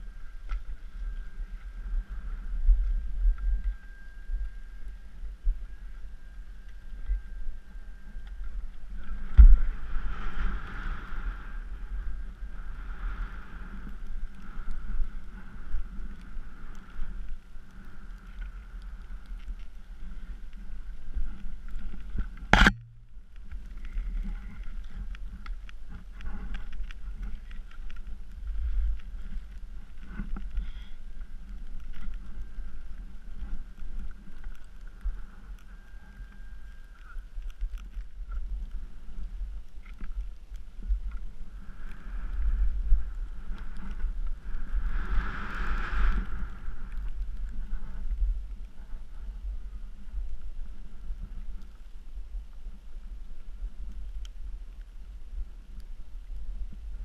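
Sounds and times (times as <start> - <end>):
sharp click: 22.6 - 23.0
skis rushing through powder snow: 44.4 - 46.8.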